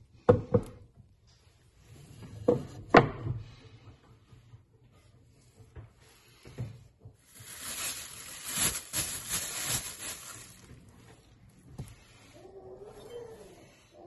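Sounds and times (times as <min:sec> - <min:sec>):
plastic wrap crinkling: 0:07.2 - 0:11.6.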